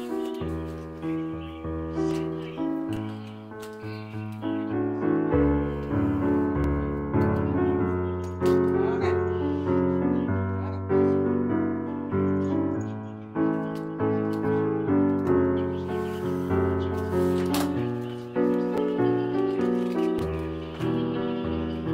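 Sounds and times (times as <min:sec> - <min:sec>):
slow piano melody: 0:00.0 - 0:21.9.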